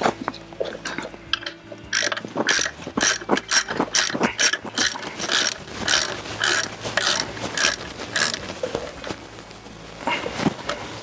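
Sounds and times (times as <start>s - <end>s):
ratchet wrench clicking: 0.8s - 8.5s.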